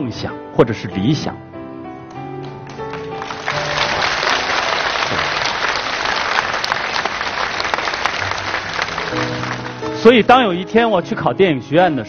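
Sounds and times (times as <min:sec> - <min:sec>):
audience applauding: 0:02.4 - 0:10.2.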